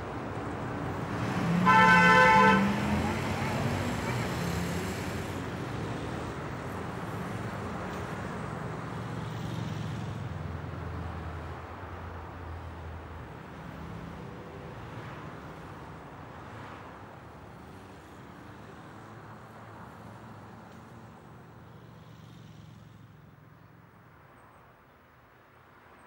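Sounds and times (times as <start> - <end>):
city street traffic: 0.0 - 26.0.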